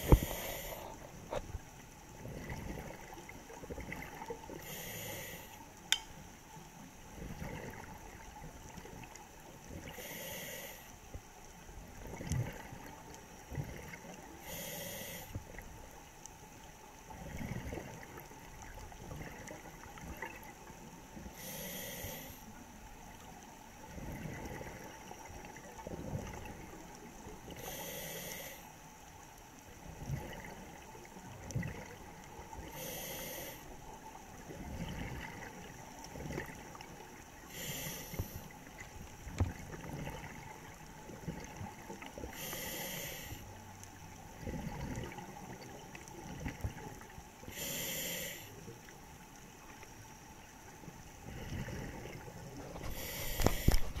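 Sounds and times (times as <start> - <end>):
underwater regulator breathing hiss: 0.0 - 1.4, 4.6 - 5.6, 9.9 - 10.9, 14.4 - 15.4, 21.3 - 22.5, 27.6 - 28.7, 32.6 - 33.7, 37.5 - 38.5, 42.3 - 43.5, 47.5 - 48.6, 52.8 - 54.0
bubbles gurgling: 2.2 - 4.4, 44.4 - 47.1.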